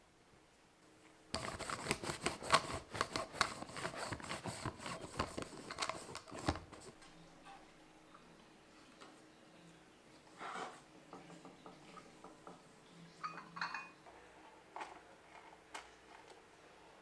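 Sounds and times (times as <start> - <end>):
lint roller crackling on fabric: 1.3 - 7.0.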